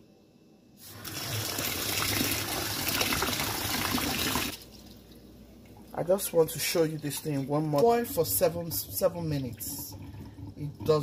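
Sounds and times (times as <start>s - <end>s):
water pouring into a glass bowl: 6.5s - 11.0s.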